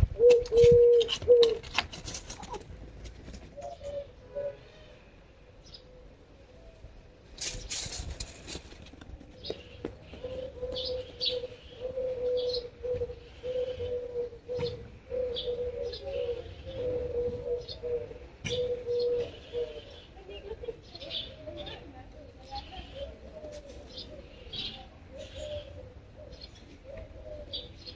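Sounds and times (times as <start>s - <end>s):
doves cooing: 0.0s - 27.9s
small birds chirping: 3.4s - 27.9s.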